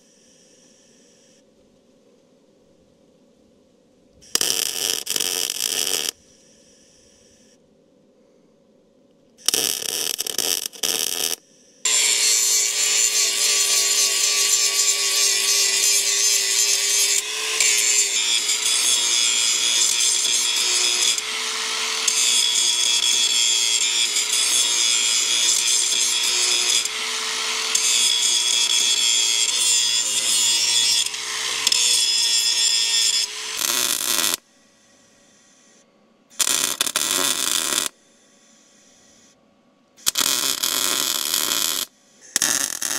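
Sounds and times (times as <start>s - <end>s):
welding arc crackling and hissing: 4.2s - 6.2s, 9.4s - 34.4s, 36.4s - 38.0s, 40.0s - 42.9s.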